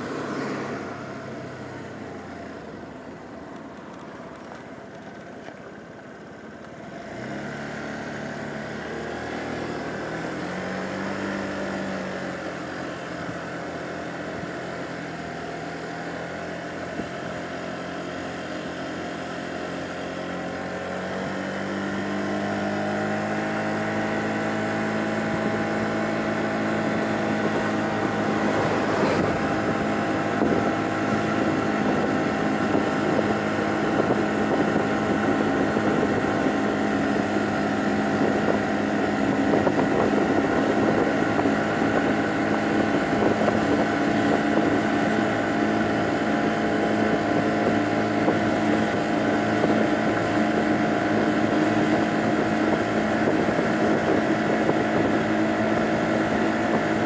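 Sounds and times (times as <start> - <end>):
scooter engine accelerating: 0.0 - 57.0
wind on microphone: 24.6 - 57.0.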